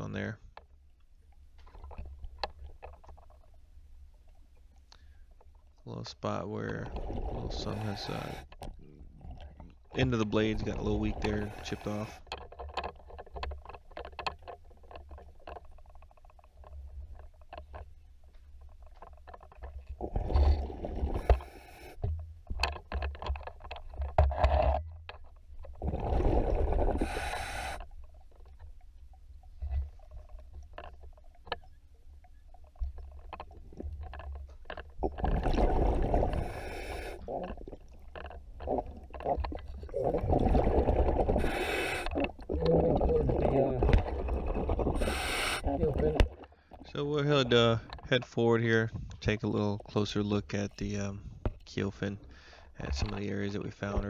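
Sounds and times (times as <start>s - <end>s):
low underwater rumble: 27.9s - 47.9s.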